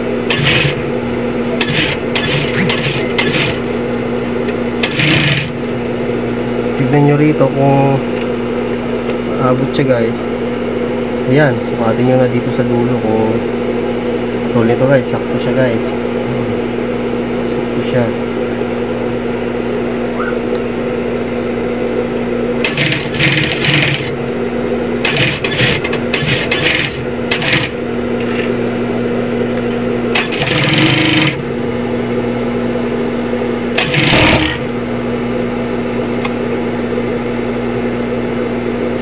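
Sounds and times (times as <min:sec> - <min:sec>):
sewing machine motor hum: 0:00.0 - 0:06.0, 0:22.5 - 0:24.3, 0:25.0 - 0:28.9, 0:29.6 - 0:31.6, 0:33.6 - 0:34.9.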